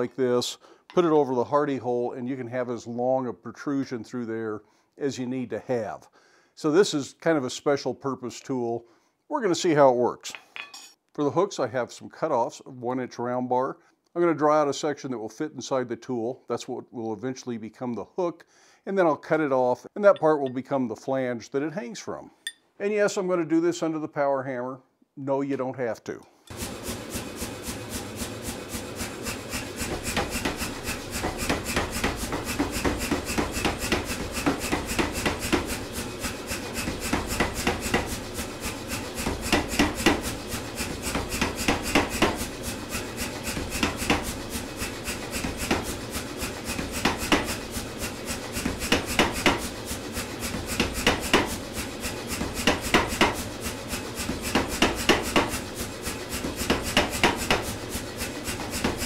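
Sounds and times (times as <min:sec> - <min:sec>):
power hammer striking hot steel: 0:29.3 - 0:59.0.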